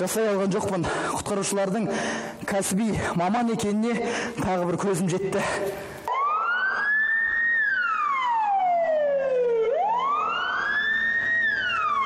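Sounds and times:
emergency siren wailing: 0:06.1 - 0:12.0.

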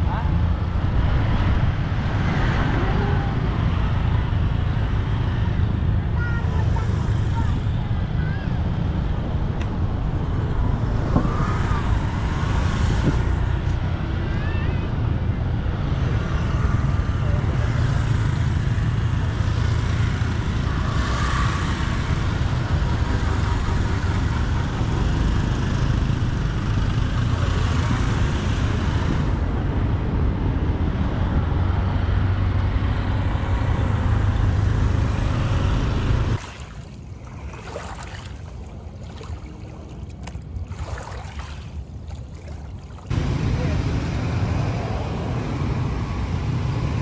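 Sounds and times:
road traffic noise: 0:00.0 - 0:47.0
wind rumble on microphone: 0:00.0 - 0:47.0.

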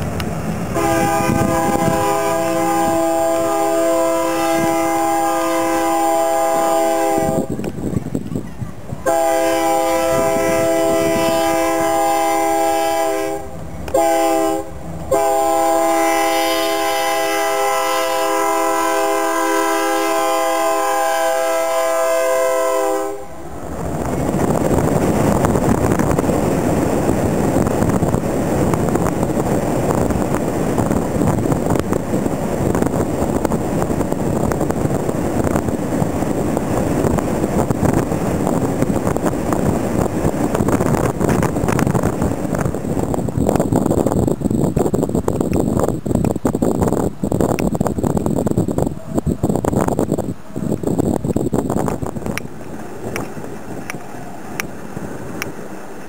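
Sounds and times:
car wind and road noise: 0:00.0 - 0:21.5, 0:22.2 - 0:56.0
locomotive air horn chord: 0:00.8 - 0:07.5, 0:09.1 - 0:23.4.

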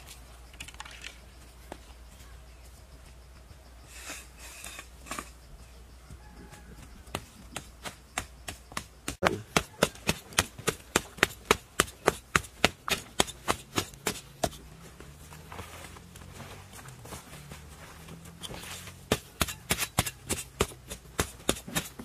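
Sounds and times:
hand tool hammering blows: 0:07.0 - 0:15.1, 0:18.2 - 0:22.0.

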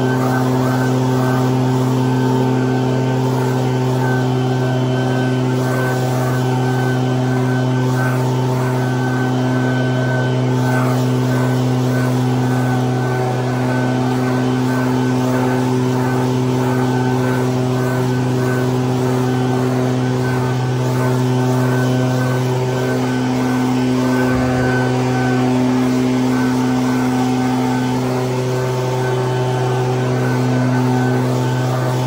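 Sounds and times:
leaf blower engine running: 0:00.0 - 0:32.0
air stream blowing leaves: 0:23.3 - 0:28.0.

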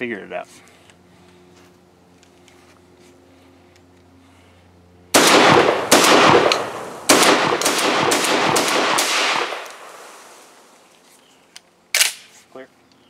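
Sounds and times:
shotgun blasts with echo: 0:05.1 - 0:10.1.

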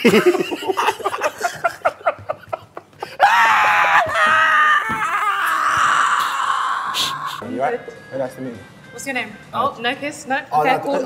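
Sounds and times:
men laughing hysterically: 0:00.0 - 0:07.4
high-pitched scream of laughter: 0:03.2 - 0:07.4.

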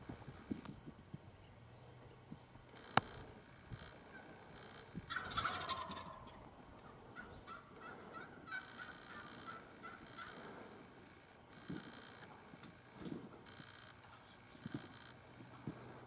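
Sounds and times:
short high turkey calls: 0:02.8 - 0:12.6
turkey gobbling: 0:03.8 - 0:10.8.

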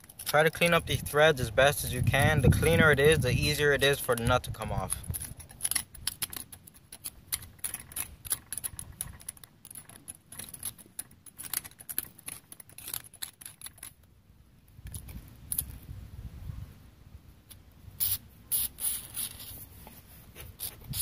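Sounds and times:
metal pick scraping rusty threads: 0:01.9 - 0:14.1.

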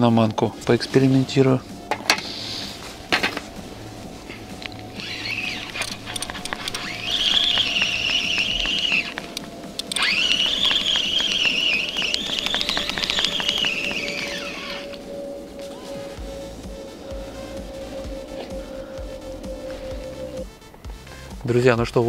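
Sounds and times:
fishing reel whirring and clicking: 0:04.5 - 0:20.5.

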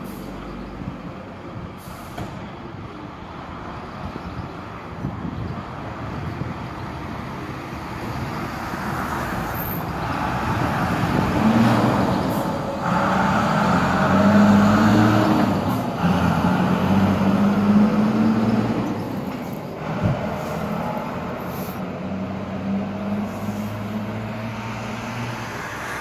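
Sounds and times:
road noise: 0:00.0 - 0:26.0
diesel engine accelerating: 0:05.2 - 0:26.0.

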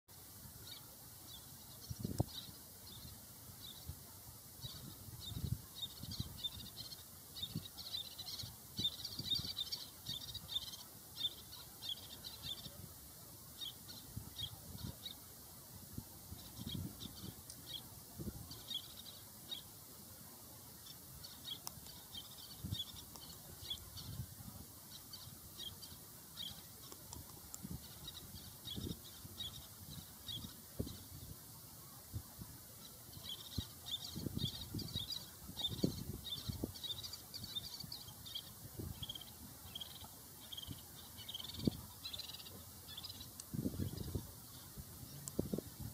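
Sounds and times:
terns chirping: 0:04.6 - 0:12.8, 0:20.7 - 0:32.0, 0:32.8 - 0:45.6.

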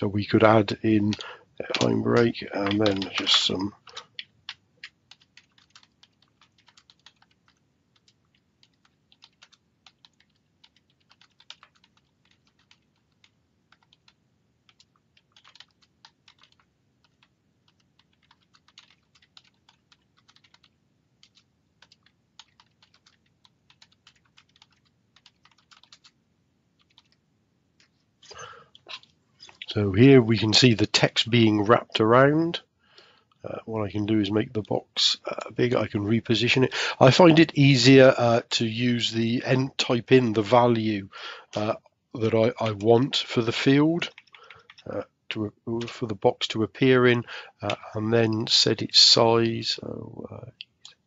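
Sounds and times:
keyboard typing clicks: 0:01.1 - 0:26.2.

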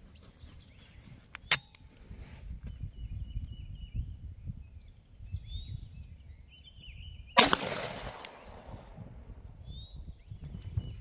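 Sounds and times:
pistol shot: 0:07.4 - 0:08.9.

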